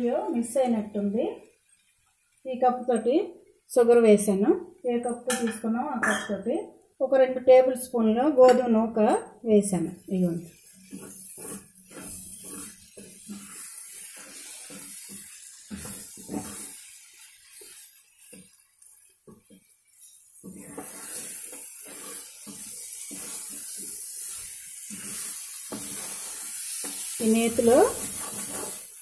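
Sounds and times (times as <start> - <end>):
mixture sizzling in ghee: 0.0 - 5.9, 9.0 - 29.0
spatula scraping pan: 10.0 - 29.0.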